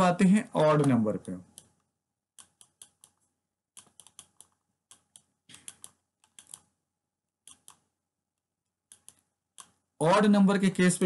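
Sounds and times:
stylus tapping on tablet screen: 0.6 - 6.8, 7.4 - 8.0, 8.7 - 9.9.

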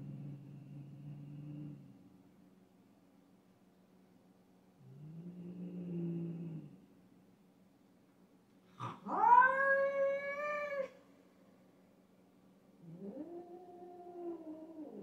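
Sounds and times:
cats yowling: 8.8 - 11.0, 12.8 - 15.0.

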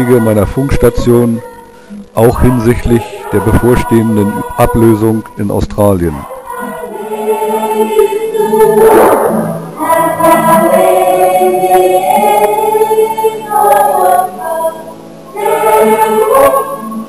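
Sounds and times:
choir singing held chords: 0.0 - 17.0
short rushing swell: 8.6 - 9.9.

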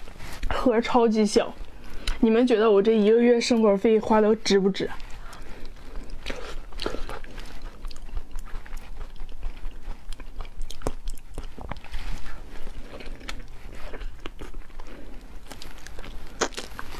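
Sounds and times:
person chewing: 5.0 - 16.9
lip and tongue clicks: 5.1 - 11.9, 15.4 - 16.9.

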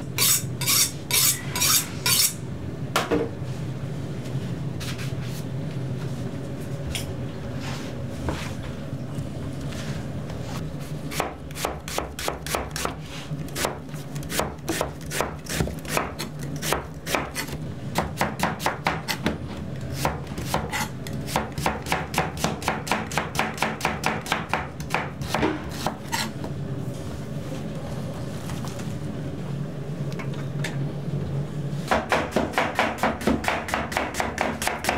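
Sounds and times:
steady low hum: 0.0 - 34.9
knife chopping on cutting board: 11.1 - 13.0, 13.6 - 19.4, 20.0 - 26.3, 31.9 - 34.9.

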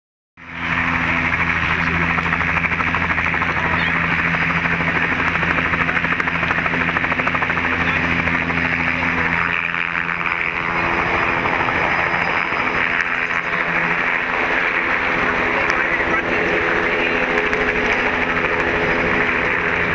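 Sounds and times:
helicopter engine: 0.4 - 19.9
helicopter rotor chop: 0.4 - 19.9.

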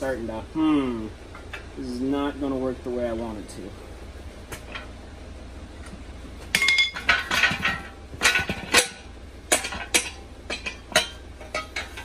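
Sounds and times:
metal pipe clanking: 4.5 - 5.0, 6.4 - 12.0.

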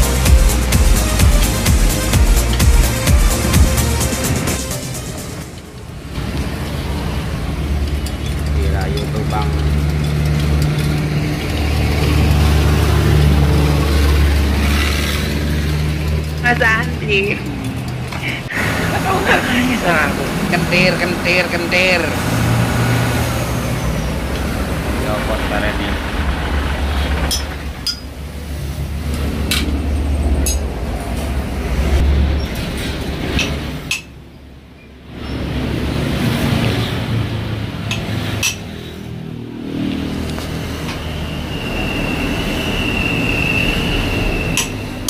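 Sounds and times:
rushing noise: 0.0 - 34.2, 35.0 - 45.0
vehicle engine droning: 0.0 - 45.0
low hum: 7.2 - 34.3
metal tools clinking: 7.7 - 12.1, 14.9 - 18.5.

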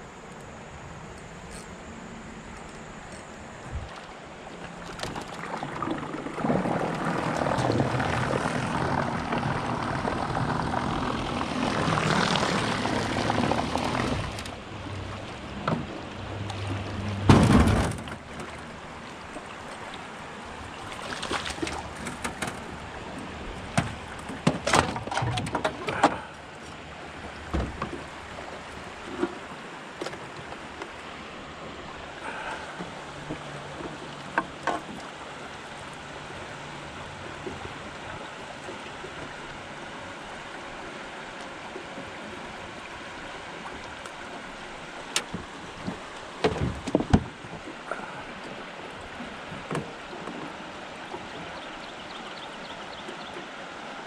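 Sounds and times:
boat motor running: 0.0 - 53.5
water rushing around hull: 0.0 - 54.0
loud thump: 17.2 - 18.0.

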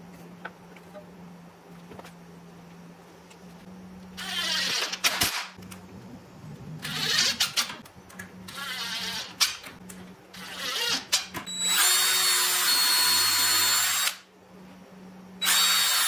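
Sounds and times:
cordless drill driving screws: 15.4 - 16.0.

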